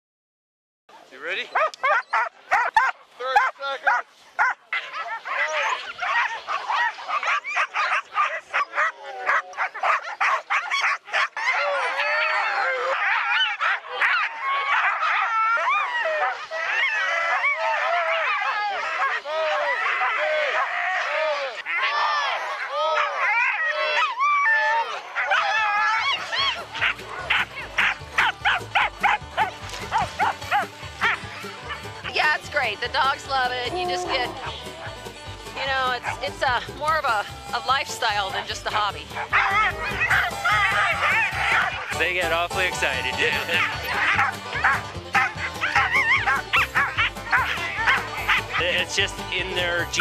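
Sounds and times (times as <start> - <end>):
sled dogs barking and yelping: 1.2 - 50.0
background music: 25.4 - 50.0.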